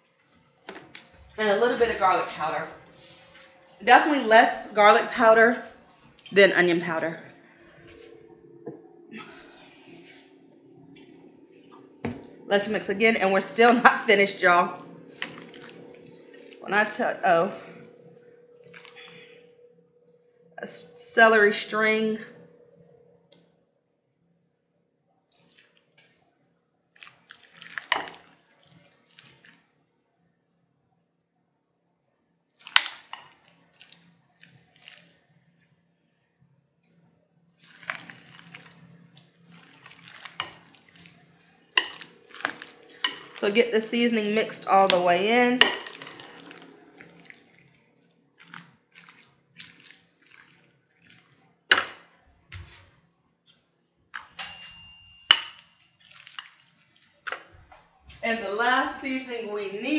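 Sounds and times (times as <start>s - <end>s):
spoon stirring salad in glass bowl: 13.4s - 17.0s, 18.6s - 19.2s, 27.0s - 29.6s, 32.6s - 35.2s, 37.6s - 52.9s, 54.2s - 57.8s
spoon tapping bowl: 54.2s - 55.7s.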